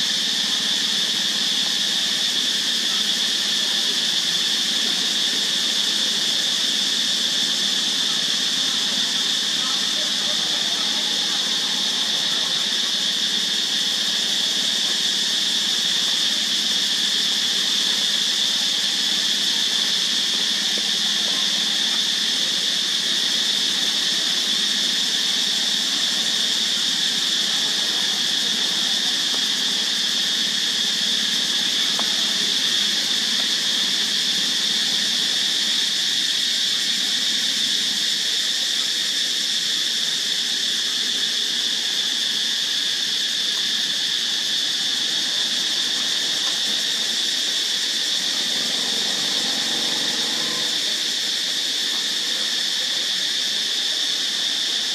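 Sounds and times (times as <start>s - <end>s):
high-pitched insect drone: 0.0s - 54.9s.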